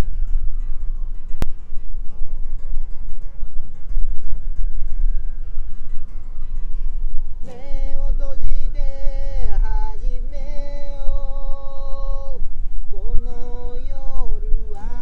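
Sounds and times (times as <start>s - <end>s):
acoustic guitar strumming: 0.0s - 15.0s
man singing in high voice: 7.4s - 15.0s.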